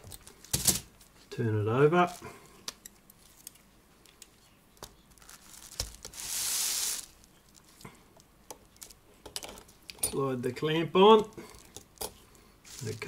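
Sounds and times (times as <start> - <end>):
hissing rubbing noise: 6.1 - 7.2.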